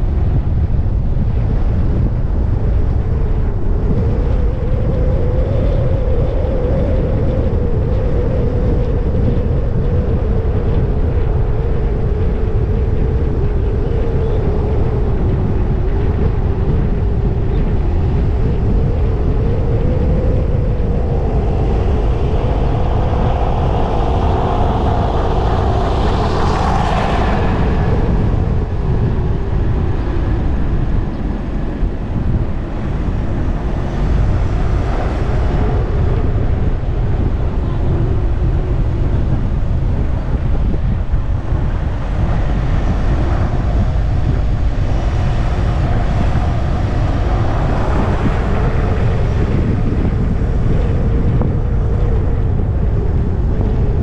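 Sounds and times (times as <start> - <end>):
engine hum: 20.1 - 34.4
car road noise: 20.5 - 35.7.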